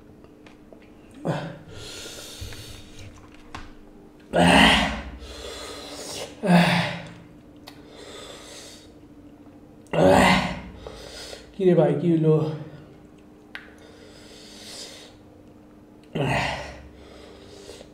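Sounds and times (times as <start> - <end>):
man gasping and blowing breaths: 1.2 - 3.0.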